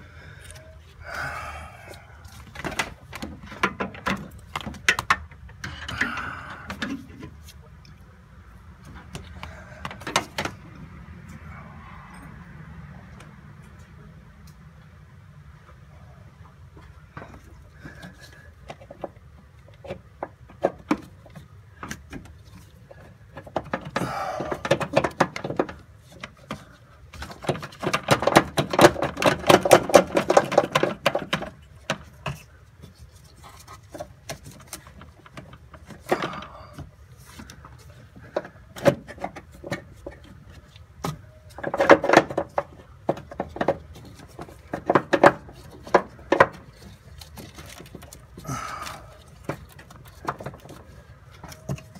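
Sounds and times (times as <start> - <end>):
tools and parts clicking and rattling: 2.3 - 7.4, 17.2 - 51.9.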